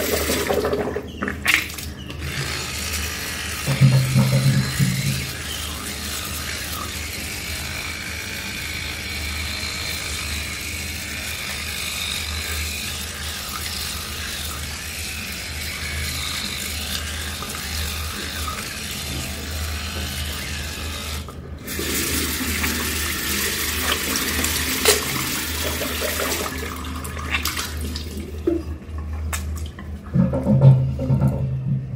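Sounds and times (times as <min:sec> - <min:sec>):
tap water running into sink: 0:00.0 - 0:01.9, 0:03.6 - 0:05.6, 0:21.7 - 0:31.9.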